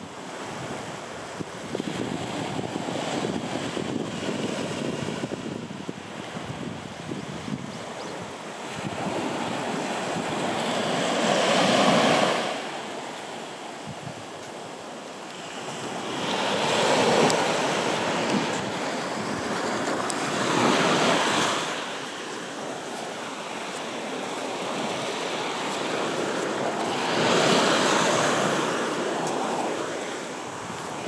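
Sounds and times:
sea waves breaking on shore: 0.0 - 31.0.

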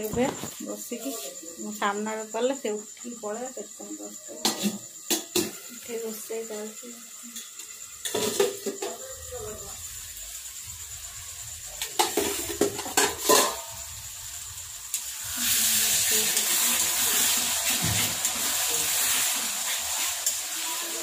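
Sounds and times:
chicken sizzling in hot pan: 4.4 - 21.0
metal utensils clinking on pan: 7.3 - 9.0, 11.8 - 13.8.

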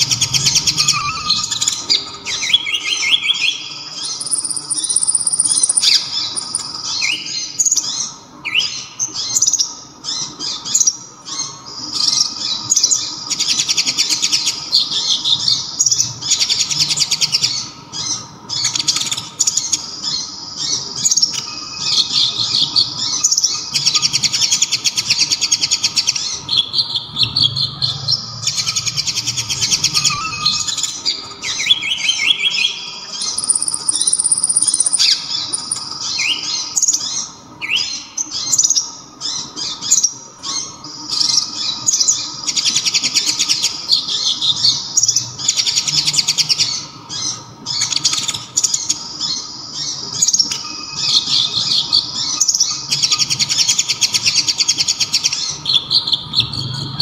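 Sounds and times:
sunbird singing trilled phrases: 0.0 - 15.9, 18.5 - 45.1.

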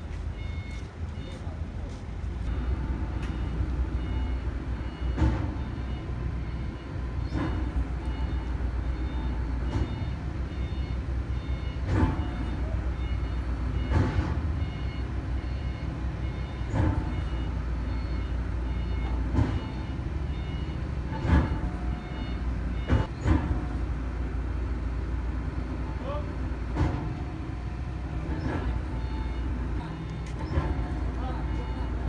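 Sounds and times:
crane engine running: 0.0 - 32.0
warning beeper beeps: 0.4 - 13.9, 28.4 - 32.0
sharp clunks: 5.0 - 6.1, 7.2 - 10.6, 11.8 - 12.7, 13.8 - 14.5, 16.6 - 17.4, 19.0 - 20.0, 21.1 - 23.8, 26.7 - 27.5.

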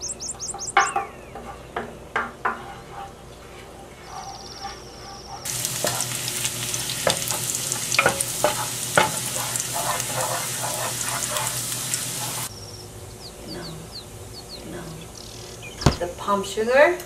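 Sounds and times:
wooden spatula scraping pan: 1.4 - 6.2, 7.0 - 12.5
garlic sizzling in butter: 5.4 - 12.5.

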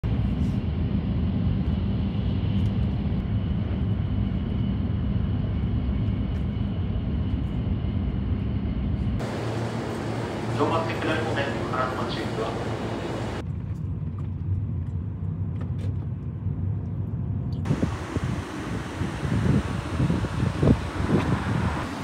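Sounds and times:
vehicle rumble in motion: 0.1 - 22.0
hissy background noise: 9.2 - 13.4.

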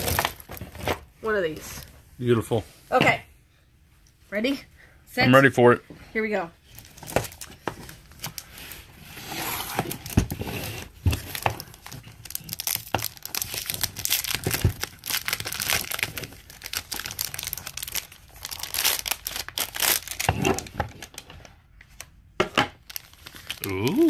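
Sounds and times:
plastic wrap crinkling and tearing: 0.0 - 0.9, 6.7 - 8.8, 9.8 - 21.3, 22.8 - 24.0.

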